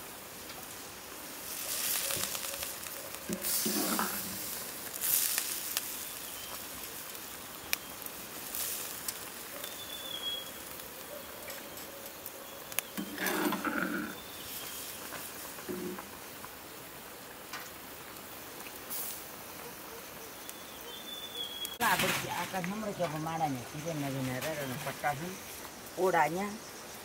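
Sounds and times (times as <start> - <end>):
meat sizzling in a wok: 0.0 - 27.0
metal ladle scraping pan: 3.3 - 4.4, 13.0 - 14.2.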